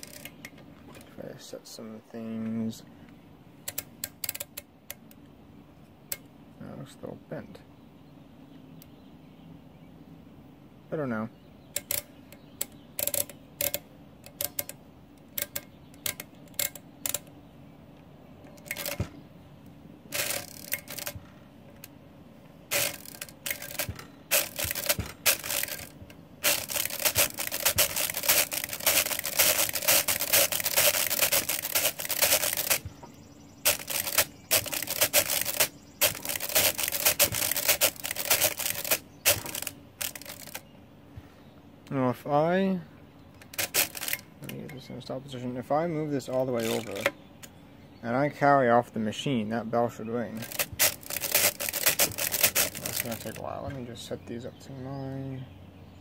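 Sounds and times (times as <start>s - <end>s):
mechanical calculator clicking: 0.0s - 0.4s, 11.8s - 17.3s, 18.5s - 19.0s, 20.1s - 21.2s, 22.7s - 33.0s, 33.6s - 40.6s, 43.4s - 44.3s, 46.6s - 47.1s, 50.4s - 53.4s.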